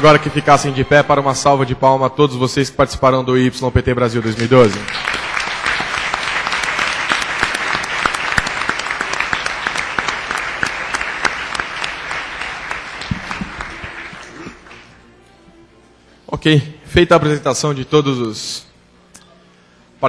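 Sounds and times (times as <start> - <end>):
large audience applauding: 4.2 - 15.0.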